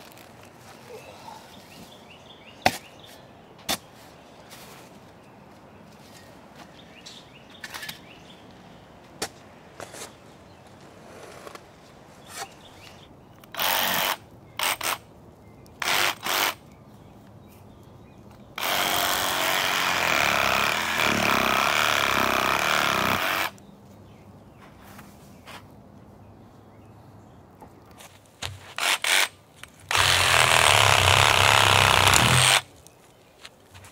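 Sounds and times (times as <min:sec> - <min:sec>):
reciprocating saw running: 0:29.9 - 0:32.6.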